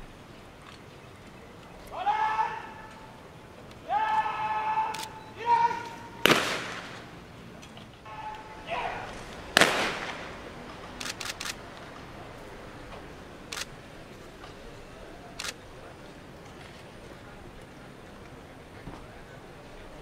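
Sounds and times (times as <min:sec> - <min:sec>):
camera shutter clicks: 0:04.9 - 0:05.2, 0:11.0 - 0:11.6, 0:13.5 - 0:13.7, 0:15.4 - 0:15.6.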